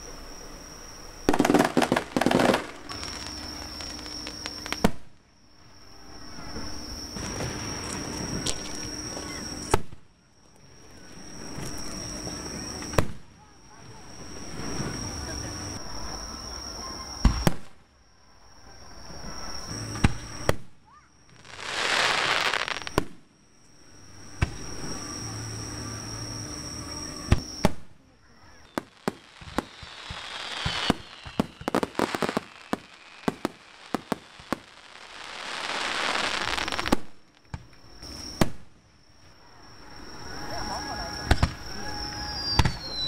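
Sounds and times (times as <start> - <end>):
long firework hisses: 0.0 - 5.1, 5.7 - 10.0, 13.9 - 20.7, 21.3 - 23.1, 23.9 - 43.0
firework shells booming: 1.3 - 5.2, 28.6 - 38.8, 41.2 - 41.8, 42.4 - 43.0
sharp firework pops: 1.3 - 5.2, 7.2 - 10.1, 12.8 - 13.3, 17.2 - 17.8, 19.9 - 23.3, 27.3 - 28.0, 28.7 - 38.7, 41.3 - 41.7, 42.5 - 43.0.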